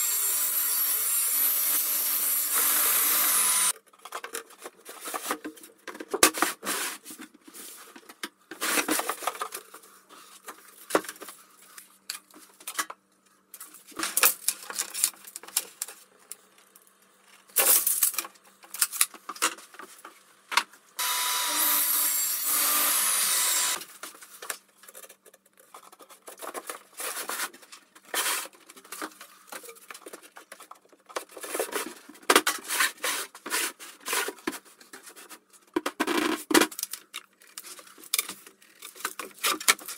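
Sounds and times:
bench power tool running: 0:00.0 - 0:03.7, 0:21.0 - 0:23.8.

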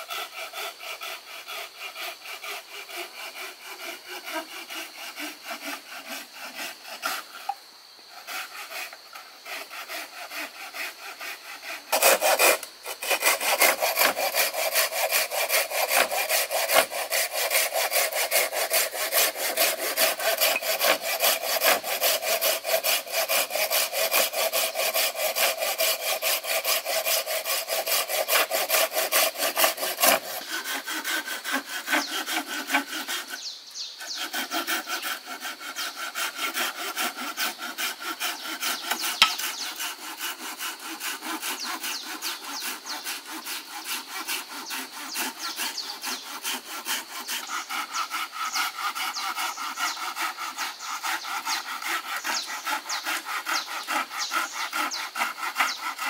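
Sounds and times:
hand saw cutting wood: 0:00.0 - 0:56.0.

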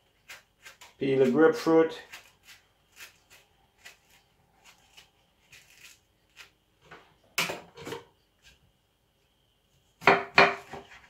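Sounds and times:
knife cutting fruit peel: 0:00.0 - 0:06.6.

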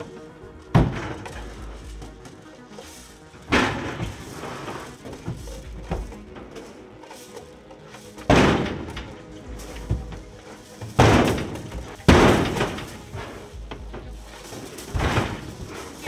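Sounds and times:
background music: 0:00.0 - 0:16.0
heavy bangs on metal trailer: 0:00.7 - 0:01.6, 0:03.4 - 0:06.5, 0:08.2 - 0:16.0.

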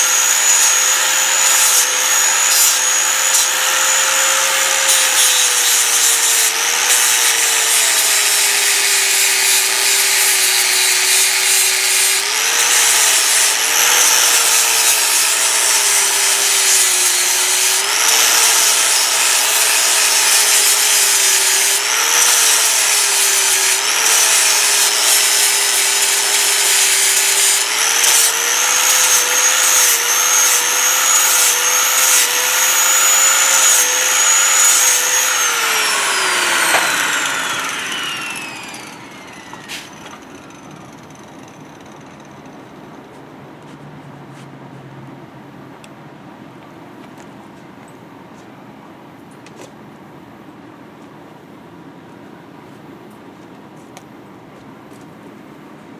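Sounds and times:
angle grinder sanding wood: 0:00.0 - 0:41.1.

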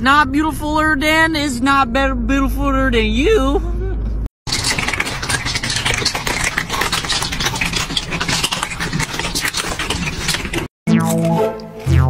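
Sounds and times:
cats crunching dry kibble: 0:04.5 - 0:10.7.

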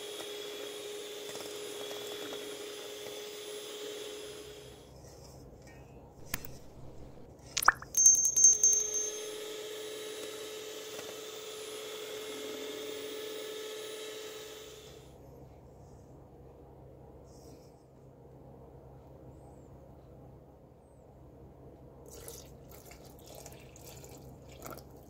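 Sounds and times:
electric hand mixer beating batter: 0:00.0 - 0:04.7, 0:09.4 - 0:14.9.

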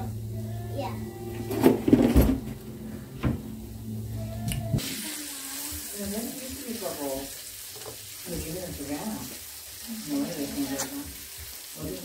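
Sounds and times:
low steady hum: 0:00.0 - 0:04.8
patties sizzling in a frying pan: 0:03.8 - 0:12.0.

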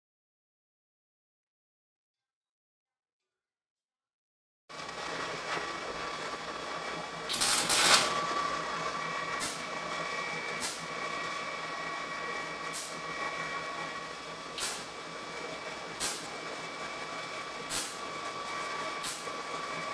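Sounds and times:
welding arc bursts: 0:04.8 - 0:09.9, 0:14.4 - 0:15.2, 0:15.9 - 0:16.5, 0:17.6 - 0:18.1, 0:19.0 - 0:19.4.

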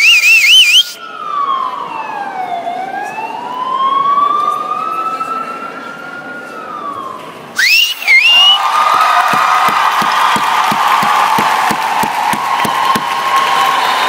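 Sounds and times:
police siren over loudspeakers: 0:00.0 - 0:08.6.

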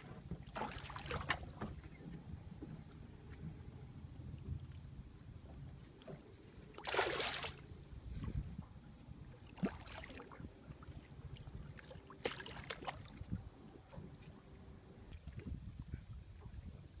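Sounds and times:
fish splashing at water surface: 0:06.8 - 0:07.6.

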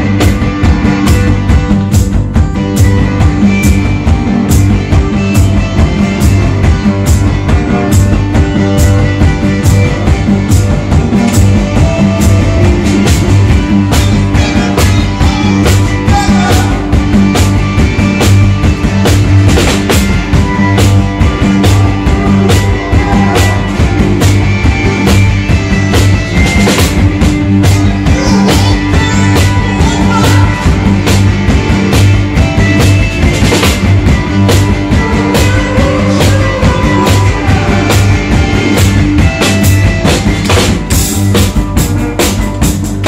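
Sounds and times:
drum kit beat: 0:00.0 - 0:43.0
electric guitar: 0:00.0 - 0:43.0
synthesizers: 0:00.0 - 0:43.0.

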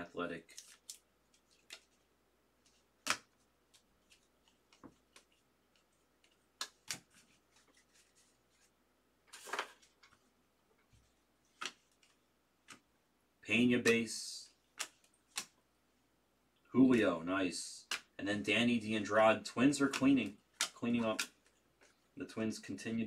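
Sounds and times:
cards rustling: 0:00.4 - 0:12.9, 0:13.8 - 0:15.6, 0:17.8 - 0:23.0
soft clicks and taps of cards: 0:00.6 - 0:02.0, 0:02.6 - 0:08.6, 0:10.9 - 0:12.9, 0:14.7 - 0:15.6, 0:17.8 - 0:18.2, 0:19.6 - 0:22.0.

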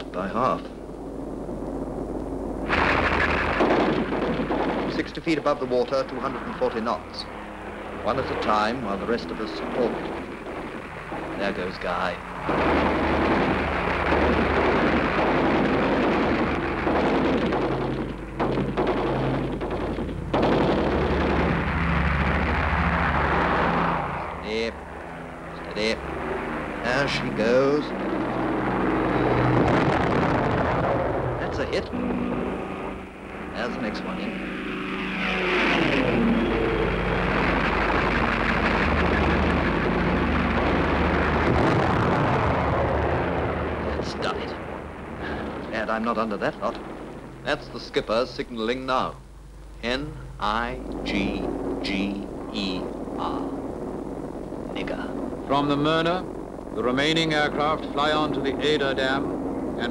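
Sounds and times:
piston engines droning: 0:00.0 - 0:59.9
machine-gun fire: 0:02.6 - 0:24.4, 0:25.8 - 0:44.4.

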